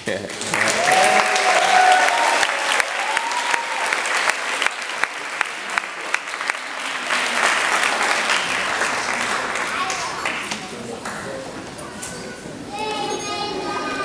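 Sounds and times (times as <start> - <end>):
audience applauding: 0.1 - 11.2.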